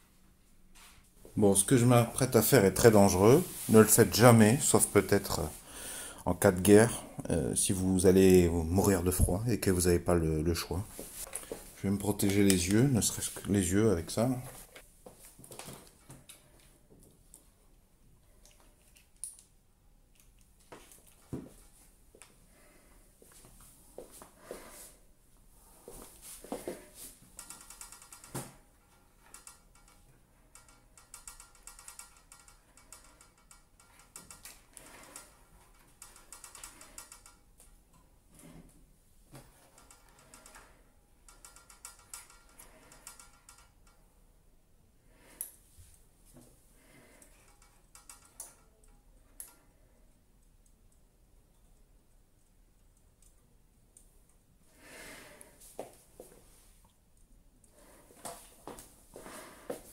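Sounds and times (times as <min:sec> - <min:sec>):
clicks and rattles of handling heater: 0:27.0 - 0:38.1, 0:39.3 - 0:44.1, 0:46.8 - 0:49.8.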